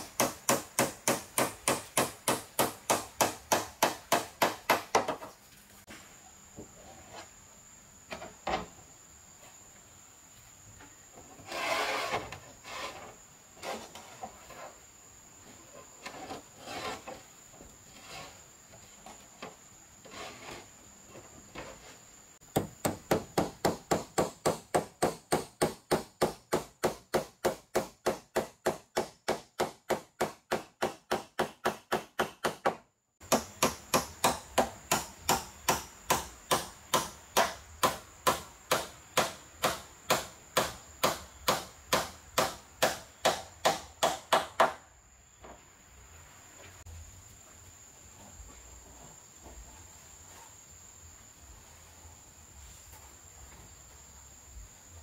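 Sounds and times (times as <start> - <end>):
hammering on corrugated roof: 0.0 - 5.3, 22.5 - 44.9
sheeting scraping: 11.3 - 14.8, 15.6 - 19.1, 20.0 - 20.8.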